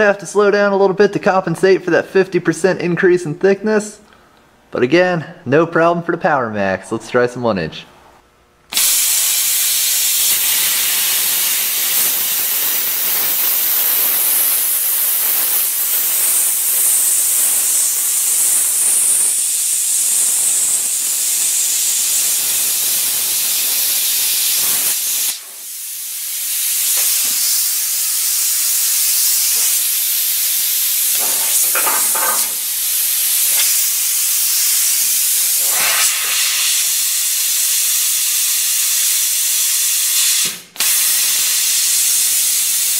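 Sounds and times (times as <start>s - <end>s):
plasma cutter hissing: 8.7s - 42.9s.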